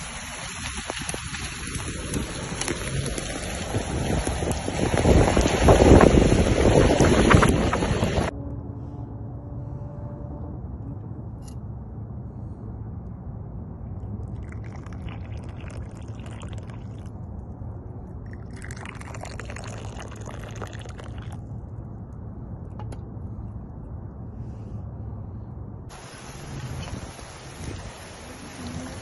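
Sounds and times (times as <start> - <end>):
low rumble: 0.1 - 29.0
tea pouring into glass cups: 14.4 - 17.1, 18.3 - 21.4.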